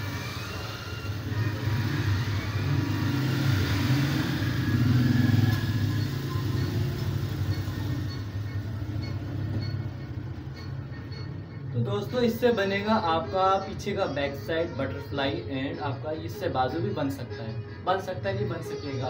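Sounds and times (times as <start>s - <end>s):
vehicle engine rumble: 1.2s - 11.8s.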